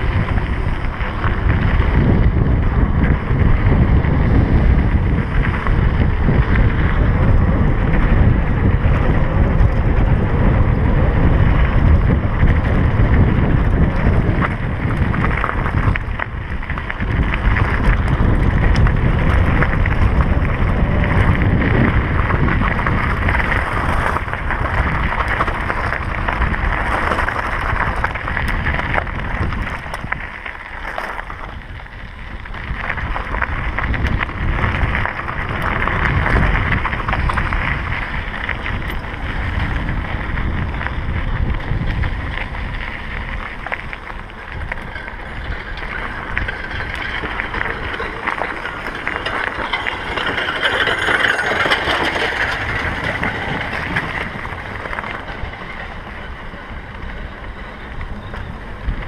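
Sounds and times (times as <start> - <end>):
bike tyres crunching on gravel: 0.0 - 59.0
wind buffeting microphone: 0.0 - 59.0
rattle of small knocks: 45.7 - 54.1.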